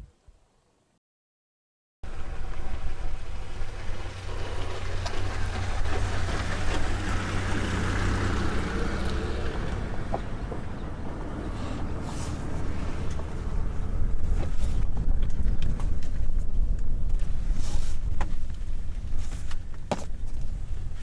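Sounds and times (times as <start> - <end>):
steady low rumble: 9.0 - 21.0.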